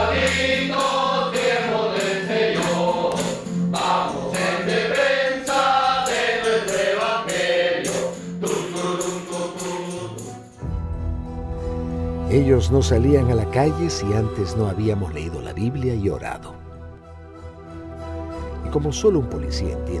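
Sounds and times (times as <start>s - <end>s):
group singing: 0.0s - 10.6s.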